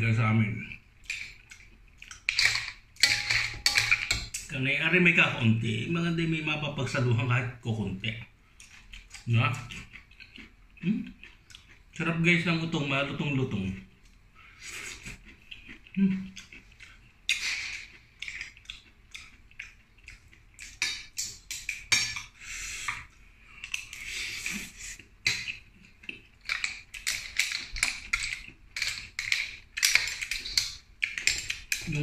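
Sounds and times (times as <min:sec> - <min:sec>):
metal ladle clinking in wok: 0:03.0 - 0:04.3
person chewing with lip smacks: 0:08.6 - 0:12.0, 0:14.6 - 0:31.8.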